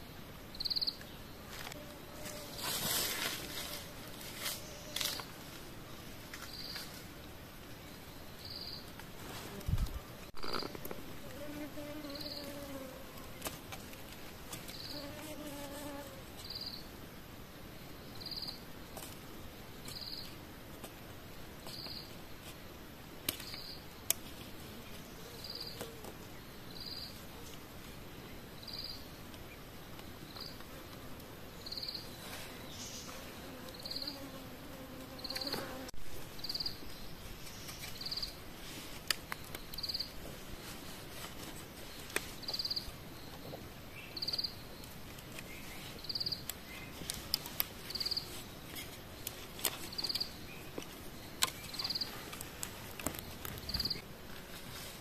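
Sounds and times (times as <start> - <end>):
insect chirping: 0.0 - 2.6, 6.4 - 7.0, 7.8 - 8.9, 10.3 - 13.0, 14.7 - 17.0, 17.8 - 18.9, 19.6 - 20.4, 21.6 - 22.8, 23.4 - 24.1, 25.2 - 27.2, 28.3 - 30.6, 31.5 - 38.4, 39.3 - 40.2, 41.9 - 54.1.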